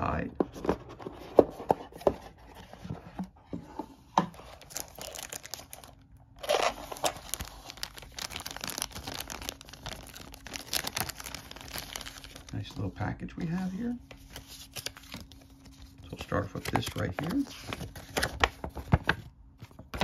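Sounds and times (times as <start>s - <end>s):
plastic bags crinkling: 4.4s - 12.8s.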